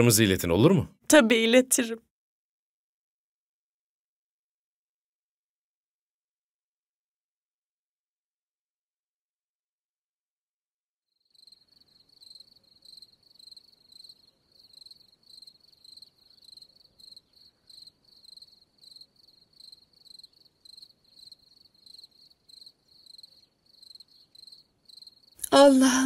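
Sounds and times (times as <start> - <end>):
cricket chirping: 11.2 - 25.5.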